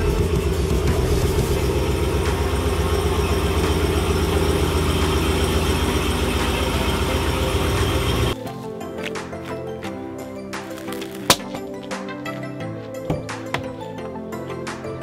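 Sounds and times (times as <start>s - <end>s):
pickup truck engine rumbling: 0.0s - 8.4s.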